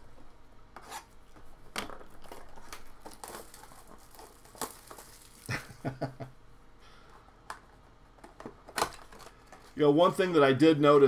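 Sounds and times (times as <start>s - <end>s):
plastic wrap and cardboard crinkling: 1.5s - 6.1s.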